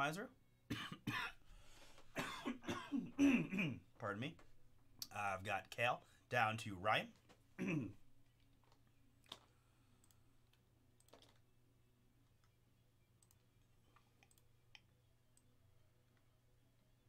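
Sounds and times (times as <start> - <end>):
faint computer mouse clicks: 14.2 - 15.5.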